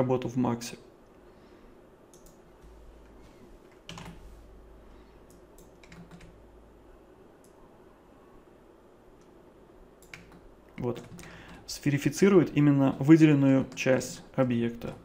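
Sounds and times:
computer mouse clicks: 2.1s - 2.4s, 5.2s - 6.4s, 10.0s - 11.6s
keyboard clicks: 2.1s - 2.4s, 3.7s - 4.2s, 5.2s - 6.4s, 10.0s - 11.6s.

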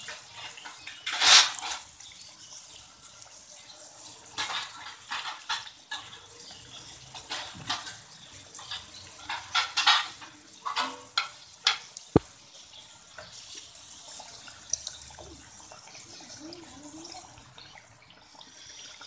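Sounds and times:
metal spoon stirring bubbling oil: 0.0s - 3.4s, 4.0s - 15.9s
food deep-frying in hot oil: 0.0s - 19.0s.

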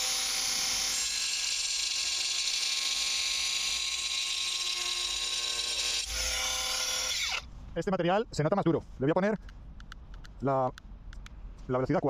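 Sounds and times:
angle grinder cutting stone: 0.0s - 7.4s.

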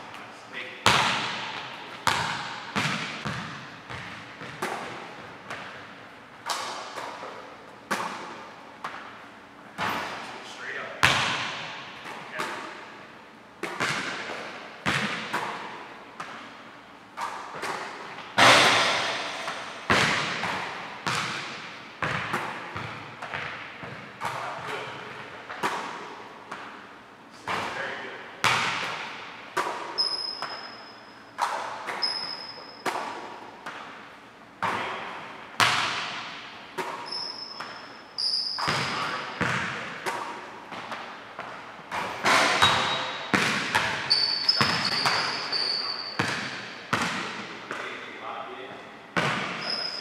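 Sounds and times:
basketball bouncing on hardwood court: 0.8s - 5.9s, 11.0s - 12.5s, 13.6s - 16.5s, 17.2s - 25.9s, 27.5s - 30.7s, 34.6s - 47.9s, 49.2s - 50.0s
sneakers squeaking on floor: 0.9s - 10.3s, 27.4s - 34.0s, 34.6s - 48.0s, 49.2s - 50.0s.

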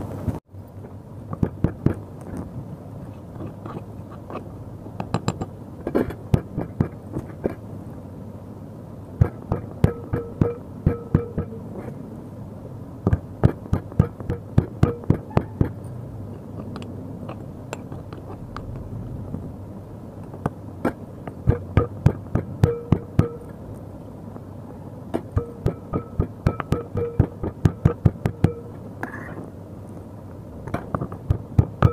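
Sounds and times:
stone pestle pounding in mortar: 9.2s - 11.6s, 13.1s - 15.8s, 21.5s - 23.4s.

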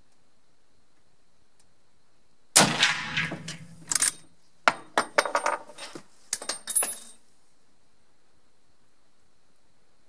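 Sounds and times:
rifle shot: 2.6s - 4.2s.

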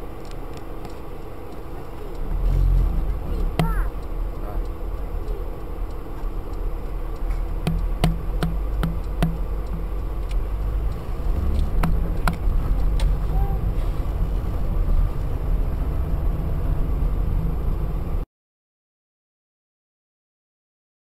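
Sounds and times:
regular ticking: 0.0s - 13.7s
car road and engine rumble: 0.0s - 18.2s.

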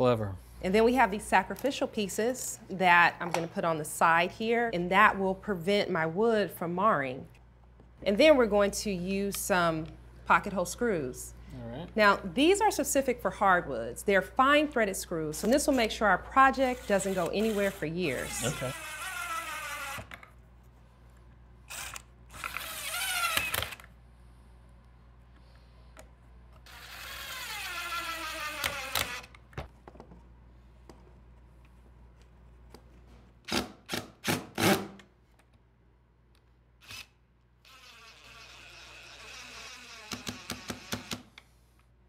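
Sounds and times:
cordless drill motor whining: 16.8s - 20.2s, 21.7s - 23.8s, 26.7s - 29.3s, 37.7s - 41.1s.

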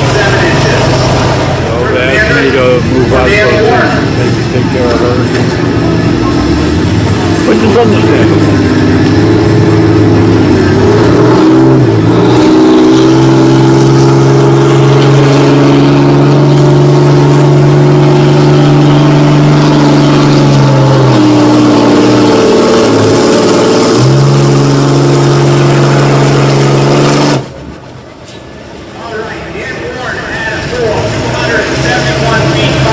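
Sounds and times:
truck engine at high revs: 0.0s - 32.9s.

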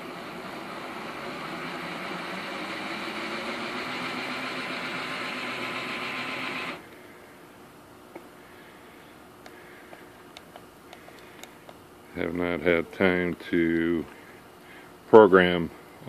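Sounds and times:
model train motor whirring: 0.0s - 6.8s.

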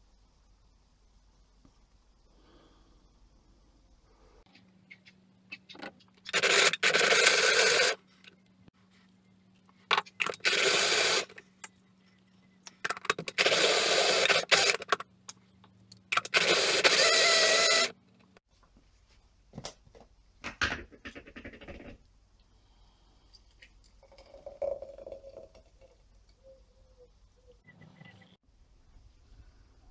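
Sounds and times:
blender pulsing: 6.3s - 8.0s, 10.4s - 11.4s, 13.3s - 14.9s, 16.2s - 17.9s.

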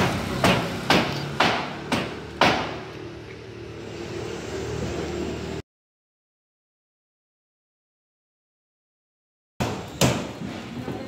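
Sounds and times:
sharp knocks: 0.0s - 2.9s
motor traffic hum: 0.0s - 5.6s.

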